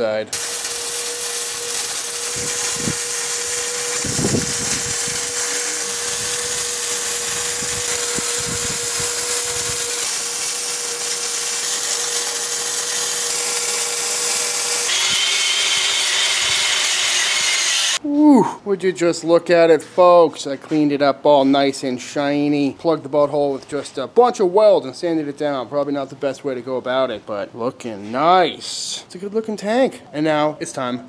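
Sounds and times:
angle grinder whining: 0.3 - 18.0
arc welder hissing: 0.3 - 18.0.

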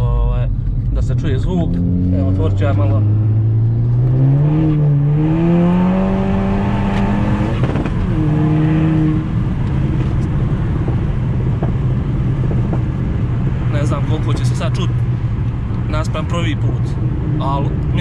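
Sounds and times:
turbocharged car engine accelerating: 0.0 - 18.0
wind noise: 4.0 - 14.3.

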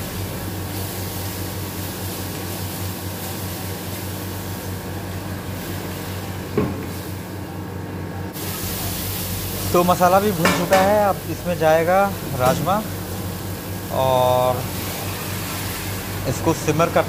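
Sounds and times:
spices sizzling in a pan: 0.1 - 4.8, 8.4 - 16.3.

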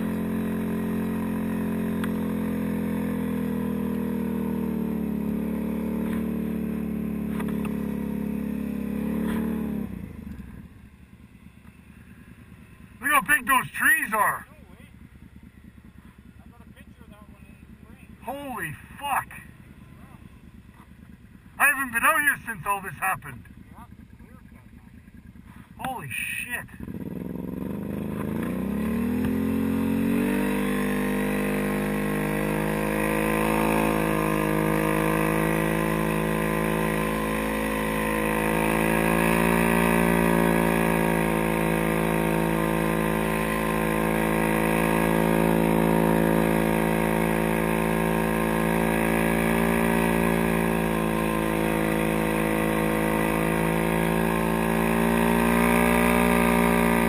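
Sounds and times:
quad engine pulling away: 0.0 - 57.0.

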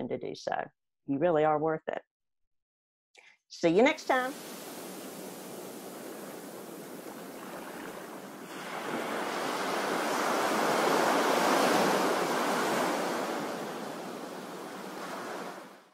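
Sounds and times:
surf washing onto beach: 4.0 - 15.9.

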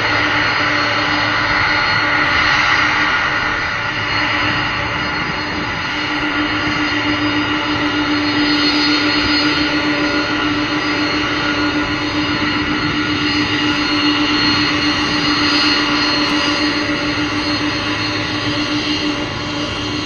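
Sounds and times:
jet engines running: 0.0 - 20.0.

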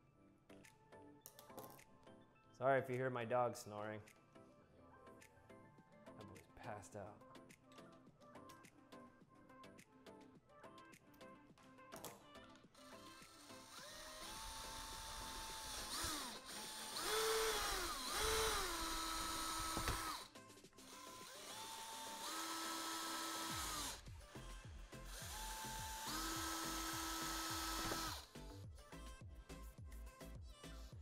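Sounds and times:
cordless drill boring through plastic: 12.8 - 24.1, 25.0 - 28.4.

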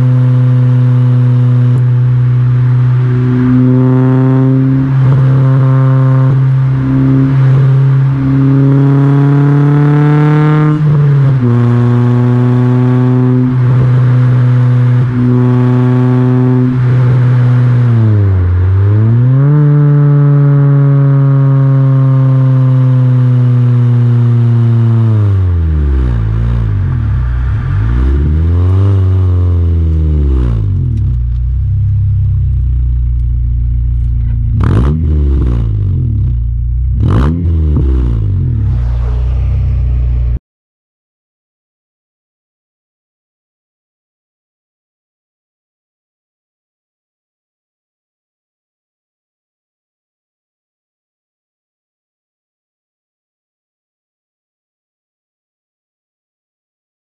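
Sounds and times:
car exhaust while driving: 0.0 - 40.4.

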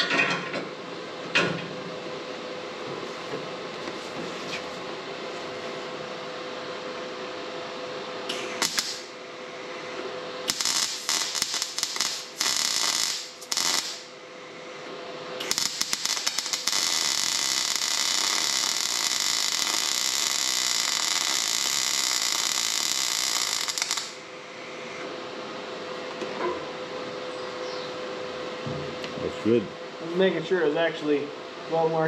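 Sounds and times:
welding arc crackling and hissing: 8.3 - 24.3.

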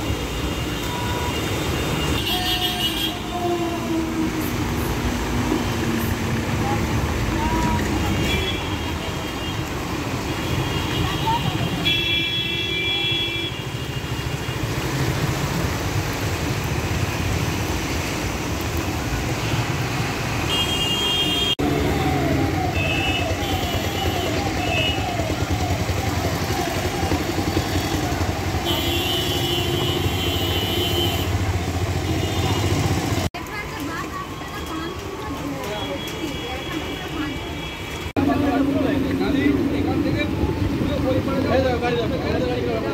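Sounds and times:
traffic engines and water wash: 0.0 - 42.9
vehicle horns honking: 0.6 - 3.8, 10.3 - 14.4, 20.4 - 21.7, 27.8 - 33.1.

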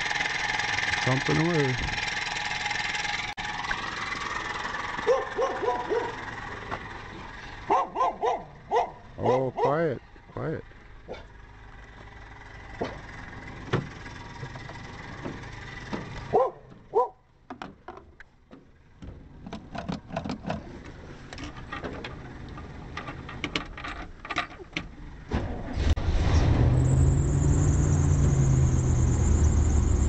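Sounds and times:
engine starting and running: 0.0 - 30.0
dog barking: 5.0 - 6.2, 7.7 - 9.8, 16.3 - 17.2
handling clicks and knocks: 17.4 - 25.0.

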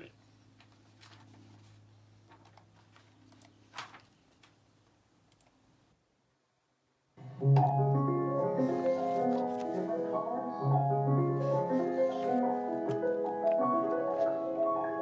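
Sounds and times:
scattered clicks: 5.3 - 5.6
recorded piano music: 7.2 - 15.0.

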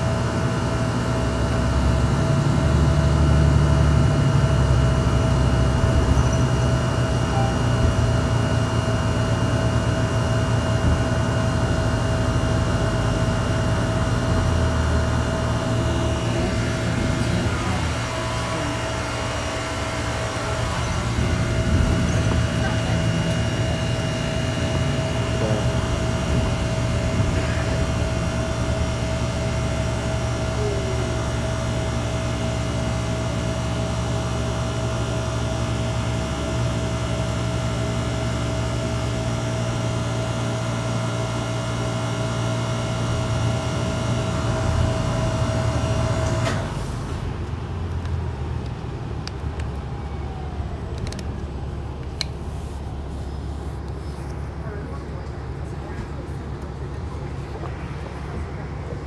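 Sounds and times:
high-pitched whine: 0.0 - 47.1
bus engine and road rumble: 0.0 - 59.0.

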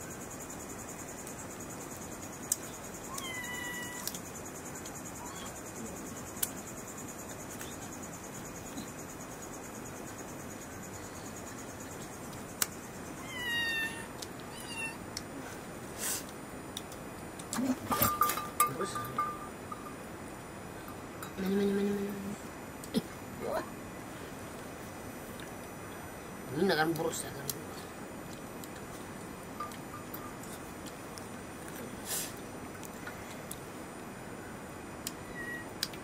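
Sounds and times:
crickets chirring: 0.0 - 36.0
cat meowing: 3.1 - 4.1, 13.2 - 15.0.

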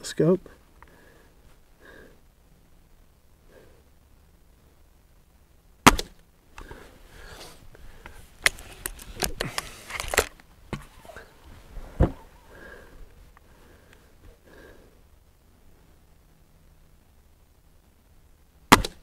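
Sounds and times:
air rifle shot: 5.8 - 6.2, 18.7 - 19.0
rifle barrel snapping shut: 5.8 - 6.2, 18.7 - 19.0
rifle cocking clicks and clunks: 8.4 - 10.5
thump: 11.9 - 12.2.

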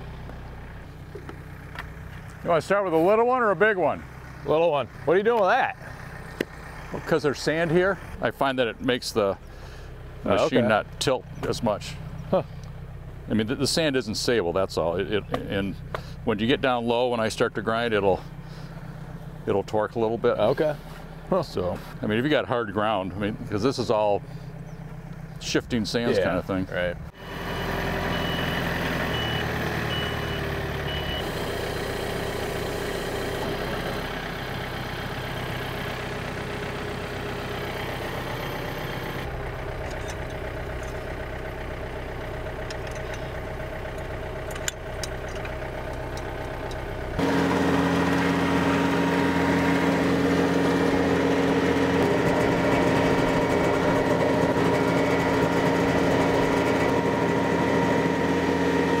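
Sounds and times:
tractor diesel engine running: 0.0 - 59.0
stump grinder humming: 27.1 - 59.0.

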